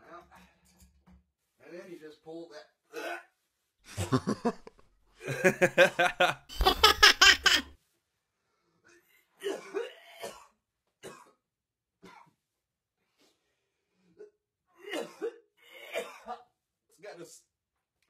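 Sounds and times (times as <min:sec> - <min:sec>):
man laughing: 0:03.9 - 0:07.7
man gagging and dry-heaving: 0:04.0 - 0:07.5.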